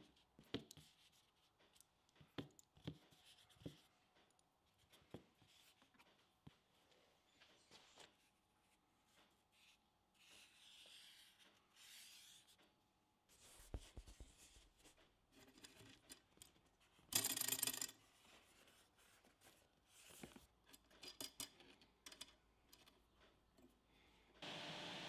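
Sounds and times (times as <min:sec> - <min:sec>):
marker scratching on foam: 0:09.5 - 0:12.6, 0:13.3 - 0:14.9.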